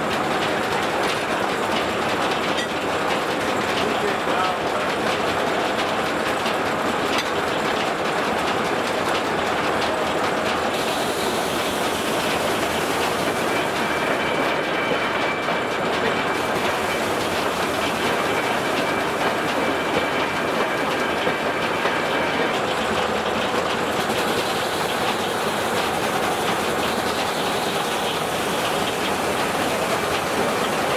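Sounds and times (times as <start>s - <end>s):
sawmill mechanical clatter: 0.0s - 30.9s.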